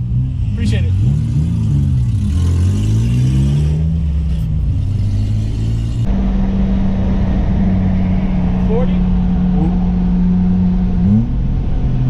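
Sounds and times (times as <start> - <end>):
car engine accelerating: 0.0 - 12.0.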